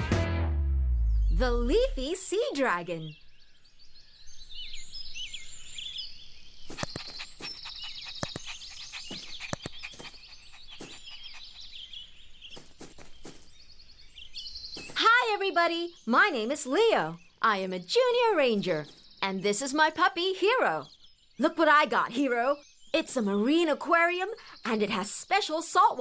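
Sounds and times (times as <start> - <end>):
birds chirping and trilling: 1.1 - 26.0
sharp clicks: 6.7 - 10.3.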